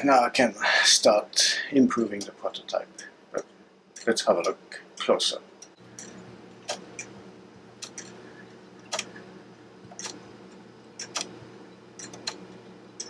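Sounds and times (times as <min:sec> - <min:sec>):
clock ticking: 0:03.9 - 0:07.1.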